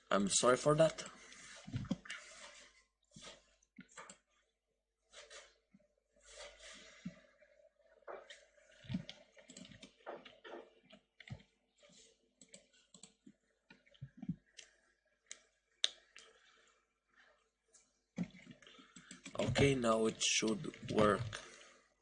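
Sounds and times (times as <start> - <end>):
computer mouse and keyboard clicking: 8.9 - 10.4, 12.4 - 13.2, 18.2 - 19.8.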